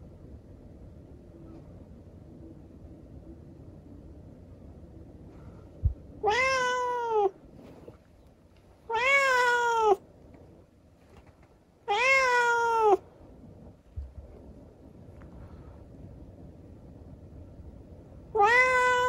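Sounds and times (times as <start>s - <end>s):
cat meowing: 6.2s - 7.3s, 8.9s - 10.0s, 11.9s - 13.0s, 18.3s - 19.0s.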